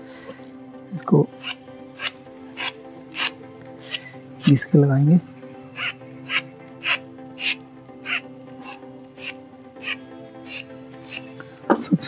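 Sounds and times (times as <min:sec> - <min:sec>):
metal file rasping on metal: 0:01.4 - 0:04.5, 0:05.8 - 0:11.3.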